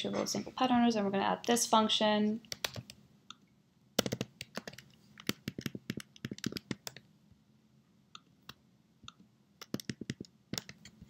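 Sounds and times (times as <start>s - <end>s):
computer keyboard typing: 2.5s - 3.0s, 4.0s - 7.1s, 9.0s - 11.0s.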